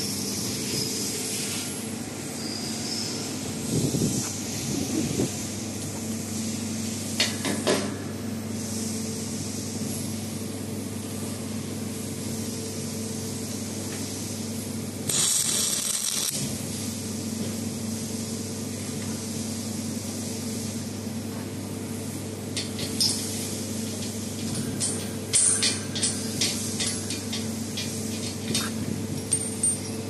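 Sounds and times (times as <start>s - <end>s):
electrical hum: 0.0s - 30.0s
hissing welding arc burst: 15.0s - 16.4s.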